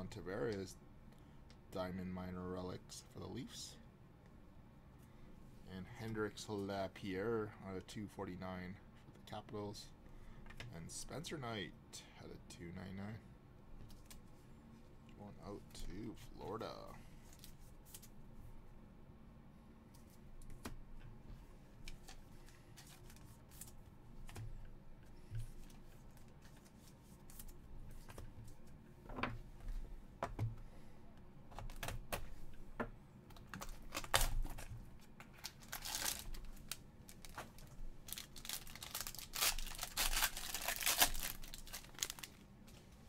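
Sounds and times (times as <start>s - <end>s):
plastic wrap crinkling and tearing: 33.6s - 34.6s, 35.3s - 42.4s.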